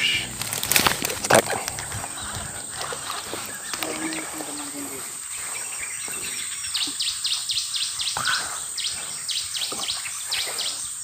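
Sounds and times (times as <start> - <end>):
rising call: 0.0 - 7.0
high-pitched hiss: 0.0 - 11.0.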